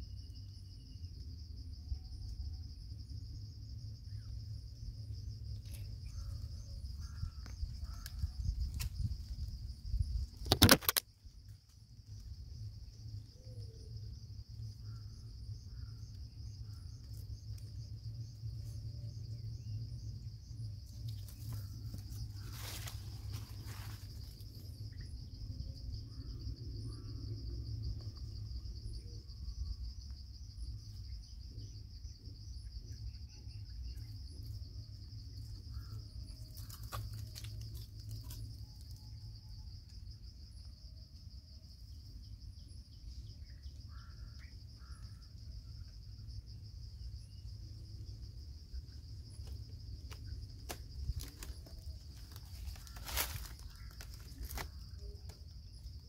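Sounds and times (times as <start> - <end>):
insects trilling: 0.0 - 56.0
sharp cracks: 10.4 - 11.0.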